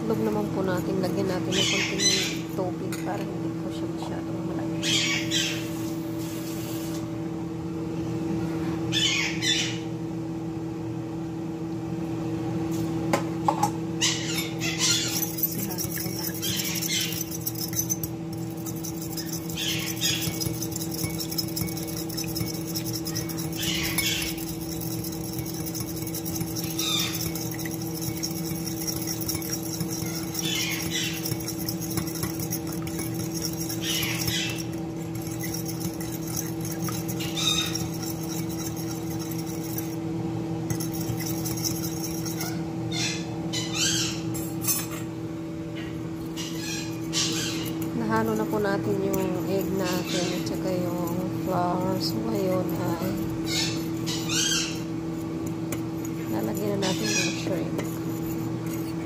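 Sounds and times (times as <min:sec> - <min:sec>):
fork beating eggs in bowl: 0:00.0 - 0:03.2, 0:14.3 - 0:42.6, 0:46.2 - 0:59.0
steady hum: 0:00.0 - 0:59.0.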